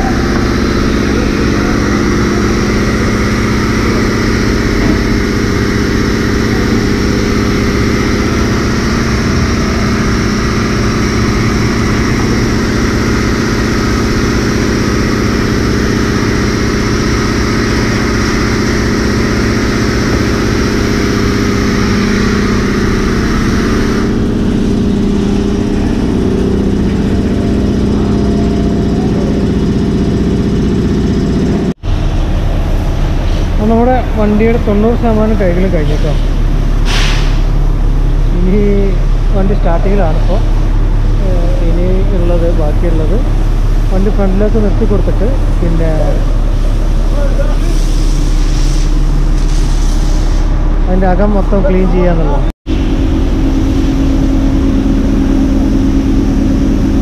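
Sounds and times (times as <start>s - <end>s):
machinery drone: 0.0s - 57.0s
pressure washer spray hissing: 0.1s - 27.3s, 35.0s - 37.7s, 43.1s - 50.6s.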